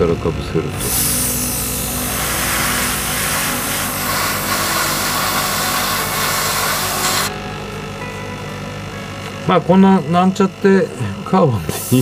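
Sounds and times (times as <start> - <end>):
steady low hum: 0.0 - 12.0
airbrush air hissing: 0.8 - 7.3, 11.7 - 12.0.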